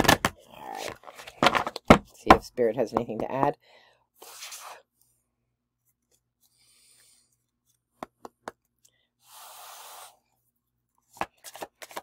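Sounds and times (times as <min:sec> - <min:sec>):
person breathing: 0:03.6 - 0:04.8, 0:06.4 - 0:07.4, 0:08.8 - 0:10.4.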